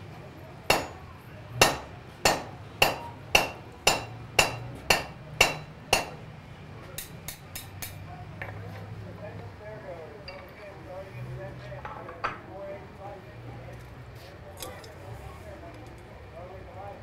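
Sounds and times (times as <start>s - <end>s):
hammer striking iron on anvil: 0.7s - 6.2s, 7.0s - 8.0s.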